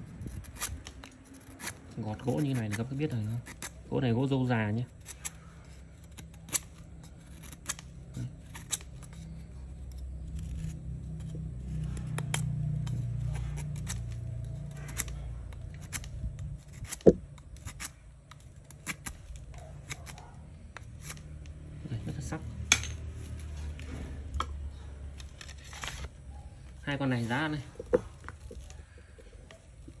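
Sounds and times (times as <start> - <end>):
knife shaving wood: 0.0 - 22.4, 23.2 - 30.0
low background rumble: 0.0 - 30.0
sharp wood snap: 14.8 - 21.6.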